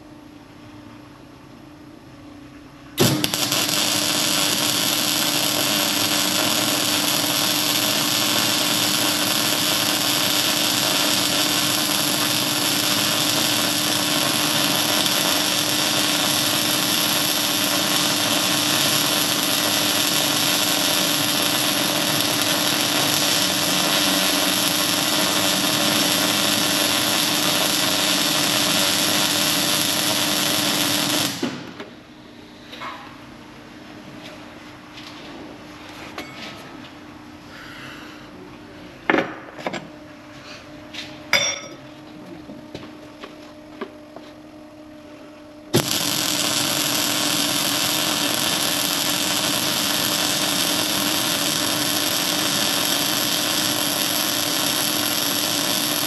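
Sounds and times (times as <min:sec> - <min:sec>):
arc welding hiss with low hum: 0:02.9 - 0:32.6, 0:42.7 - 0:56.0.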